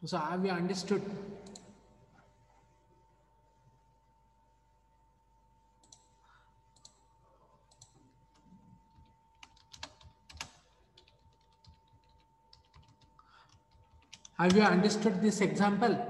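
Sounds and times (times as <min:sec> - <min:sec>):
typing on computer keyboard: 0:07.7 - 0:14.7.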